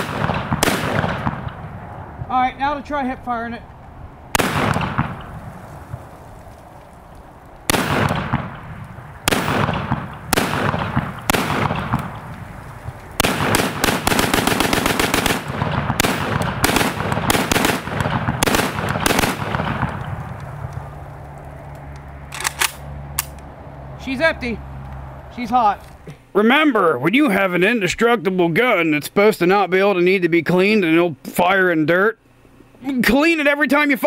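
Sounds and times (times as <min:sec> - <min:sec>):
pistol gunshots: 0:00.0 - 0:01.8, 0:04.3 - 0:05.5, 0:07.6 - 0:12.3, 0:13.2 - 0:20.4.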